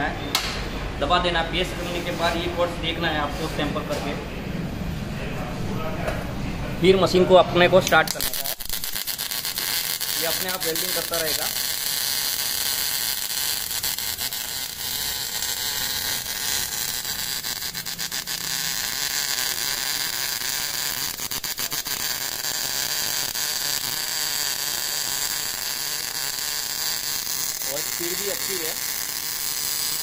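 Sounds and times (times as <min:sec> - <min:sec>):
sharp welding pops: 0:00.3 - 0:00.7, 0:07.8 - 0:30.0
welding arc crackling hiss: 0:07.8 - 0:30.0.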